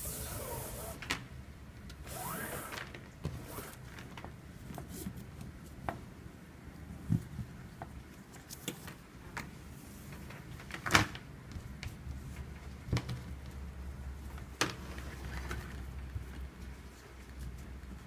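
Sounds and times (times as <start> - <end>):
cord taps and rustles: 10.1 - 13.6.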